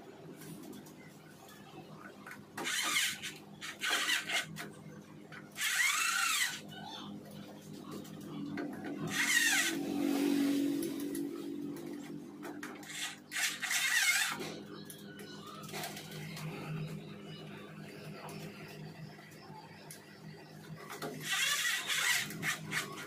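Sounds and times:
steady low hum: 0.0s - 23.0s
screwdriver scraping and squeaking: 2.6s - 4.7s, 5.6s - 6.6s, 9.0s - 9.8s, 12.5s - 14.8s, 21.0s - 23.0s.

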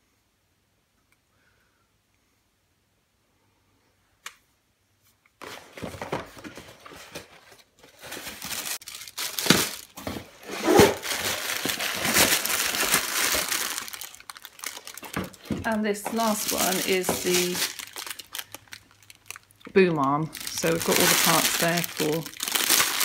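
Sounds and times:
plastic and cardboard crinkling: 5.4s - 23.0s.

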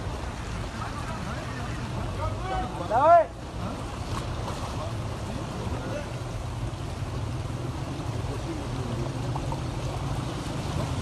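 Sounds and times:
floodwater rushing and splashing: 0.0s - 11.0s.

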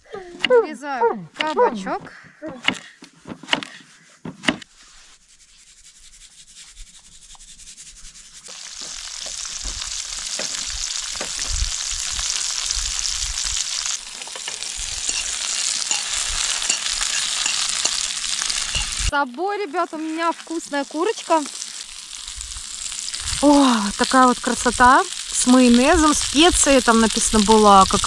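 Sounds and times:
knife cutting on wooden board: 2.6s - 4.7s
vegetables sizzling in frying pan: 8.5s - 28.0s.

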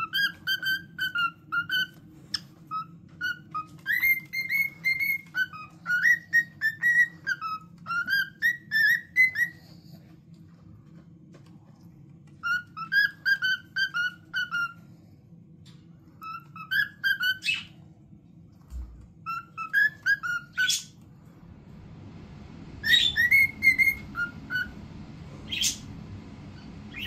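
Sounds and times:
cockatiel whistling a tune: 0.0s - 10.0s, 12.3s - 15.0s, 16.2s - 17.9s, 19.2s - 21.0s, 22.7s - 25.9s, 26.5s - 27.0s
cockatiel harsh chirps: 12.4s - 14.8s, 16.2s - 17.8s.

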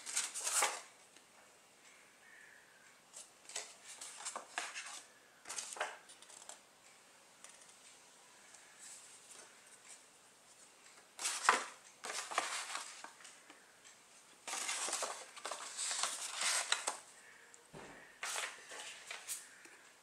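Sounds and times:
paper crackling and rustling: 0.0s - 0.9s, 3.2s - 6.6s, 11.2s - 13.2s, 14.4s - 17.1s, 18.2s - 19.6s.

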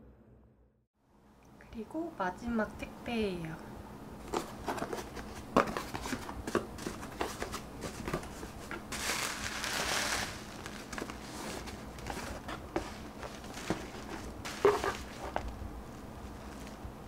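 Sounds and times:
packaging rustle: 4.3s - 16.8s
bubble wrap crinkling: 4.7s - 16.9s.

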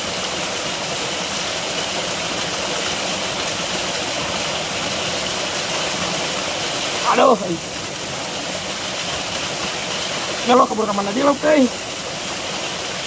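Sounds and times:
stream rushing: 0.0s - 13.0s.

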